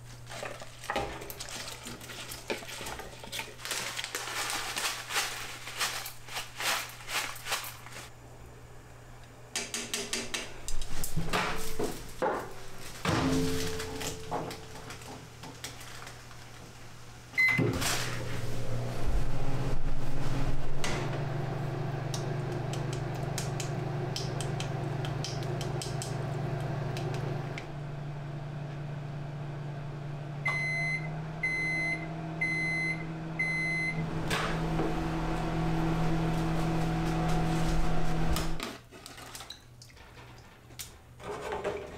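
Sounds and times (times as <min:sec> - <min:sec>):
microwave humming: 0:10.5 - 0:38.6
microwave button beep: 0:17.4 - 0:17.7, 0:30.4 - 0:34.0
microwave finished beeps: 0:17.4 - 0:17.8, 0:30.4 - 0:34.2.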